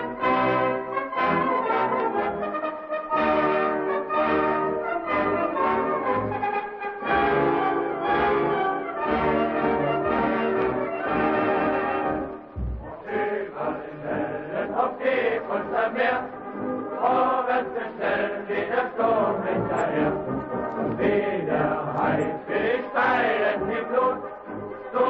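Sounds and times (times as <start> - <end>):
chant-like singing voices: 12.6 - 25.0.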